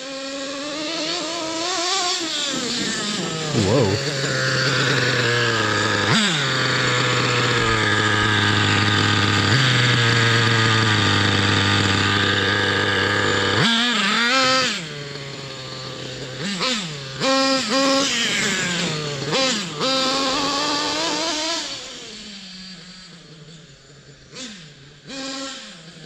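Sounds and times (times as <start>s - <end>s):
small nitro engine idling and revving: 0.0s - 26.0s.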